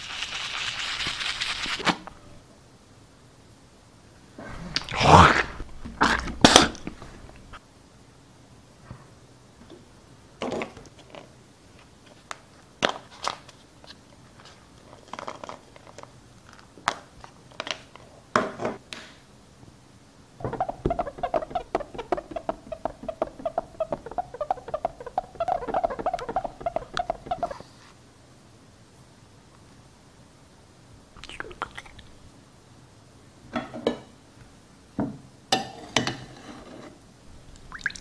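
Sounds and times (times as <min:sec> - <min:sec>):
floss zipping off spool: 0:20.4 - 0:27.6.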